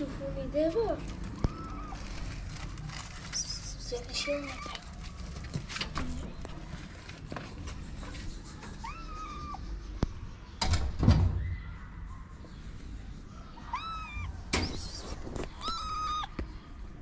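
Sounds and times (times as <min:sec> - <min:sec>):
kitten meowing: 0:01.4 - 0:02.2, 0:04.1 - 0:04.8, 0:08.8 - 0:09.6, 0:13.6 - 0:16.4
loud rustling thump: 0:14.5 - 0:15.7.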